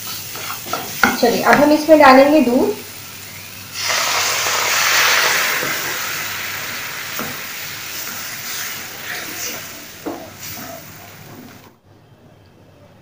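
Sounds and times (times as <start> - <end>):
milk sizzling in a hot pan: 0.0 - 11.7
wooden spatula tapping: 0.7 - 1.8.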